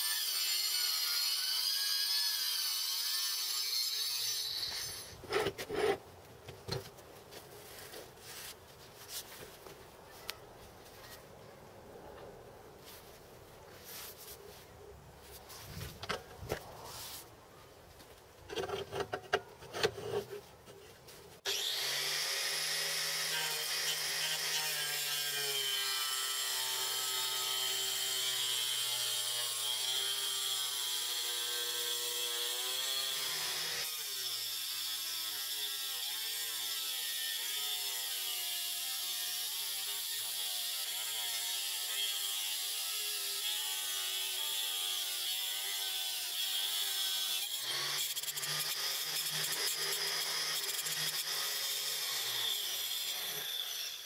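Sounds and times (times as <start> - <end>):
angle grinder cutting board: 21.5 - 25.8.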